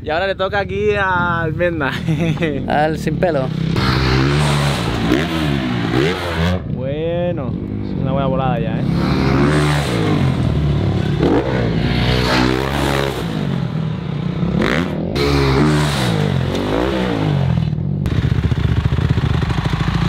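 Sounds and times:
dirt bikes idling: 0.0s - 14.8s, 17.5s - 20.0s
motocross bike engines revving: 0.0s - 20.0s.

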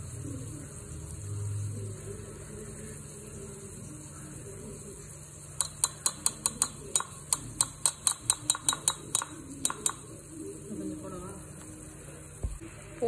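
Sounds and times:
metal spoon tapping pot rim: 5.5s - 10.2s.

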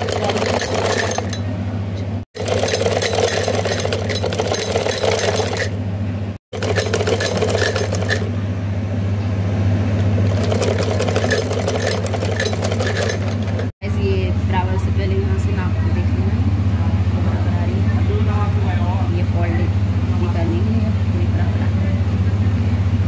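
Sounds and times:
sewing machine running: 0.0s - 1.4s, 2.3s - 5.8s, 6.4s - 8.4s, 10.2s - 13.7s.

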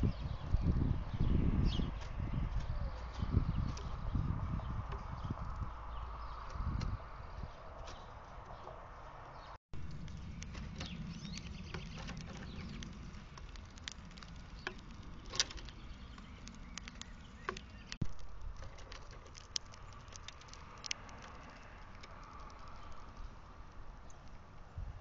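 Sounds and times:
low rumble: 9.8s - 18.6s.

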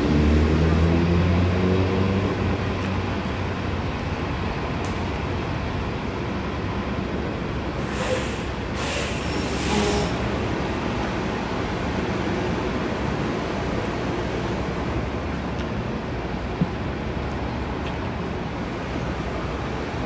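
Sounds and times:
passing traffic rush: 0.0s - 20.0s
short hissing surges: 7.8s - 10.2s.

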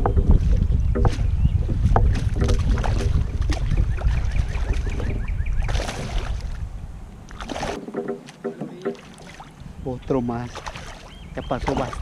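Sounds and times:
wind rumbling on microphone: 0.0s - 12.0s
landing net splashing into water: 2.1s - 6.6s, 7.3s - 9.6s, 10.4s - 12.0s.

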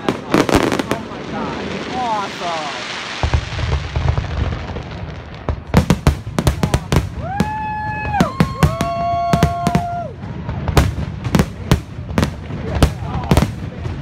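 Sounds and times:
firework bangs and crackles: 0.0s - 14.0s
whistling fireworks: 0.0s - 14.0s.

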